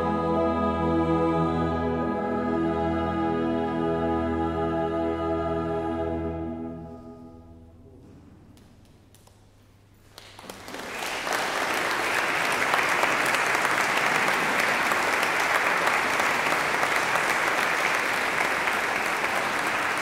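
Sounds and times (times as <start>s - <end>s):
choir singing low note: 0.0s - 8.2s
audience applauding: 10.0s - 20.0s.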